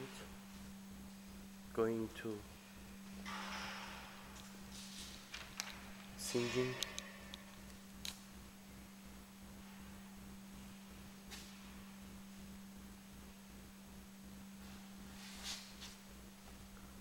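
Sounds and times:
faint low hum: 0.0 - 17.0
soft rustle: 4.4 - 5.3, 14.6 - 16.6.

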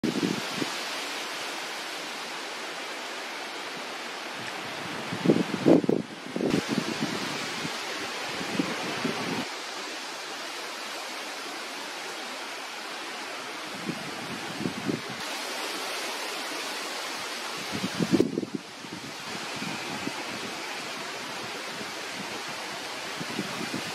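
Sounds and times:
wind gusts buffeting microphone: 0.0 - 1.0, 4.3 - 9.7, 13.6 - 15.5, 17.5 - 23.9
wind rushing: 4.6 - 9.5.

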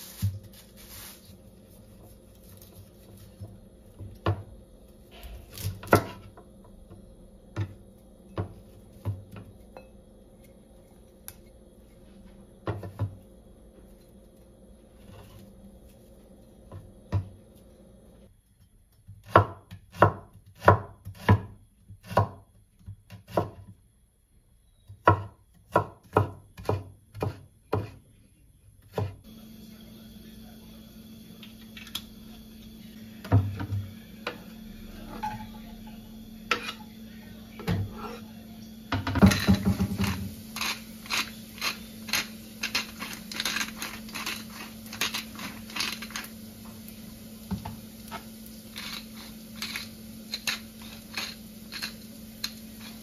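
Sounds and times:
knife chopping on cutting board: 19.2 - 23.7, 25.0 - 28.0, 28.9 - 29.2.

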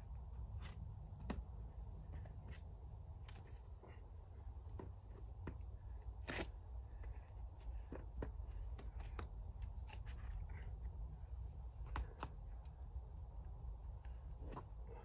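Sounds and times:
steady low rumble: 0.0 - 15.0
hands and shoes tapping rock: 4.6 - 10.7.

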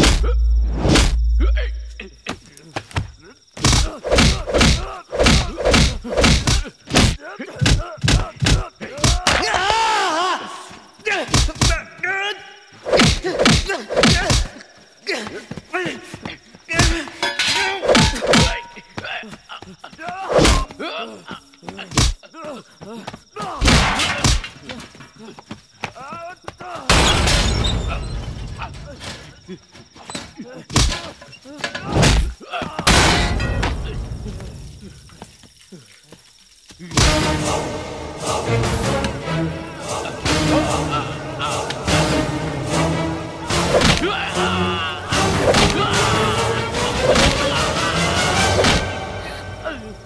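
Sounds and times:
punch impacts: 0.0 - 1.2, 3.6 - 9.3
men grunting and groaning: 1.4 - 26.9, 28.6 - 33.0, 38.1 - 50.0.

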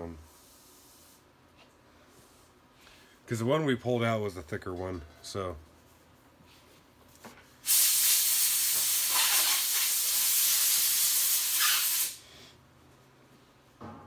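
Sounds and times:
pressurised gas hissing: 7.6 - 12.2.

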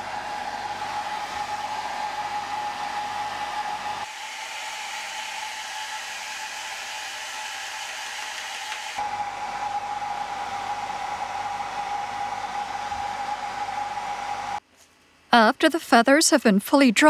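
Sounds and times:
hair dryer blowing: 0.0 - 14.6
hair dryer whine: 0.0 - 14.6.

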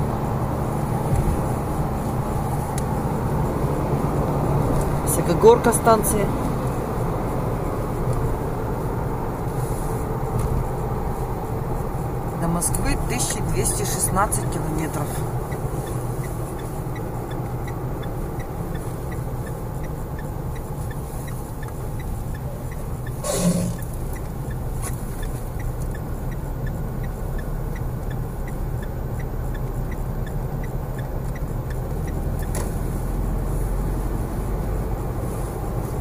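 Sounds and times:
car road and engine noise: 0.0 - 36.0
faint ticking: 11.8 - 33.6.

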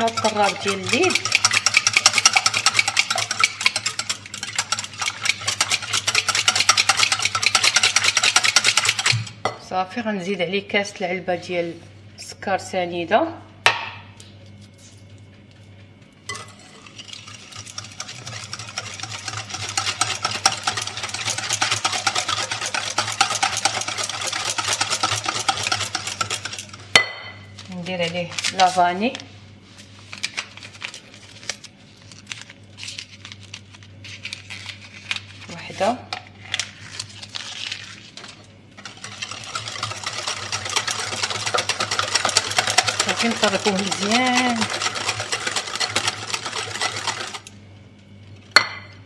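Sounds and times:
whisk clicking against glass bowl: 0.0 - 9.2, 38.8 - 47.5.

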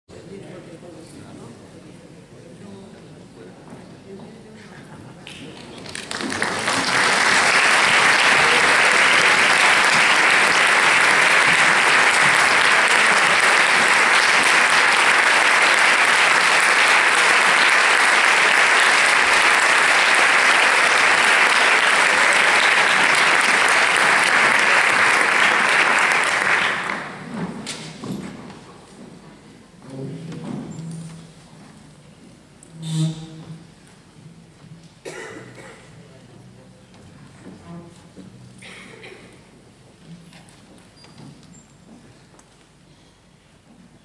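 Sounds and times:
audience applauding: 5.2 - 27.3.

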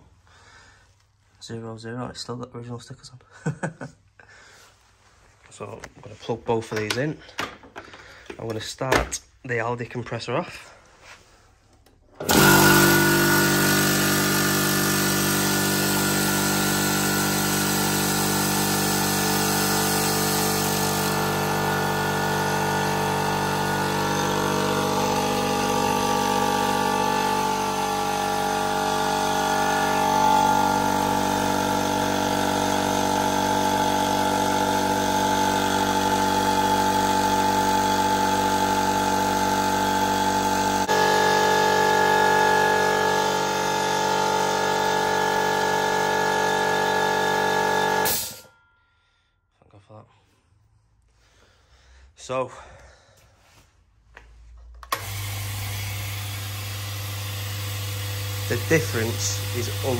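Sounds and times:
air compressor running: 11.9 - 48.5, 54.8 - 59.9.

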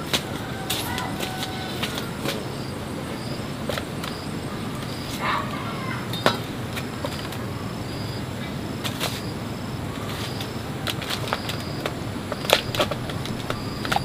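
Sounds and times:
hard objects clinking and knocking: 6.1 - 7.3.

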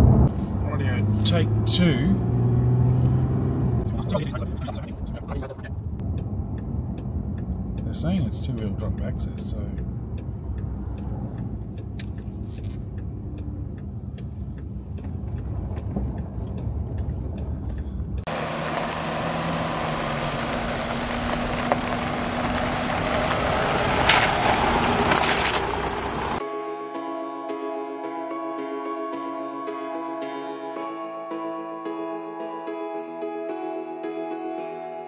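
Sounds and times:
car engine and road rumble: 0.0 - 26.4
hissing road noise: 0.0 - 26.4
faint regular ticking: 5.9 - 18.3.

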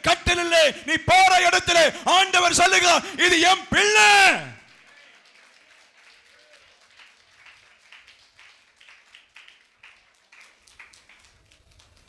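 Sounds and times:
hand clapping: 4.6 - 12.0.

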